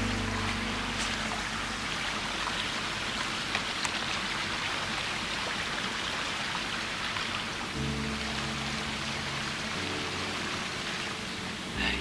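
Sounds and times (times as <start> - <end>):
stream running over rocks: 0.0 - 12.0.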